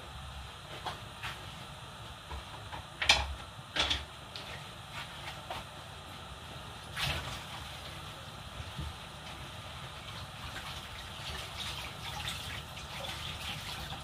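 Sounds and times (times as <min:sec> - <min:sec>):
pots hissing on stove: 0:00.0 - 0:14.0.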